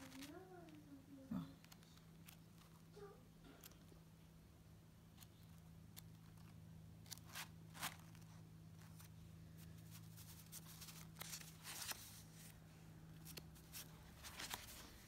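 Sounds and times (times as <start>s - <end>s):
paper pages flipping: 0.0s - 0.9s, 1.6s - 4.0s, 5.1s - 15.0s.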